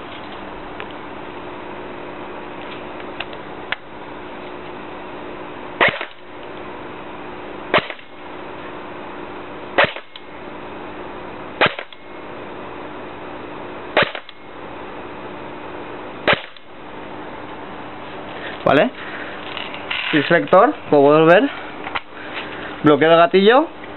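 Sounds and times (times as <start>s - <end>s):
steady background hum: 0.0s - 23.9s
airsoft gun shots: 5.8s - 6.2s, 7.7s - 8.1s, 9.8s - 10.2s, 11.6s - 12.0s, 14.0s - 14.4s, 16.2s - 16.7s.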